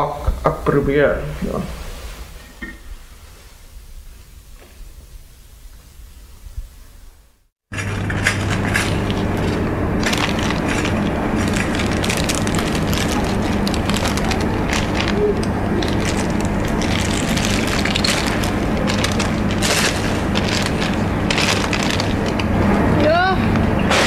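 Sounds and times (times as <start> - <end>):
low hum: 2.5 - 24.0
goods clattering and rustling: 7.7 - 22.6.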